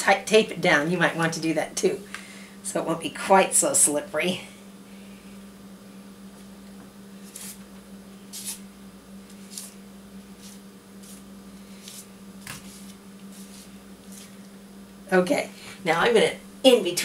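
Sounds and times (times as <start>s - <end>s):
steady low hum: 0.0s - 17.0s
feet scuffing on paper: 9.3s - 9.8s, 10.4s - 14.4s.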